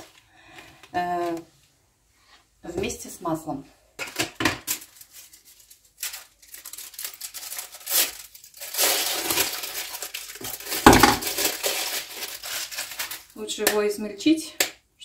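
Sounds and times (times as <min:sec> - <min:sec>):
foil wrapper crinkling: 0:04.0 - 0:13.7
chocolate breaking knock: 0:10.8 - 0:11.4.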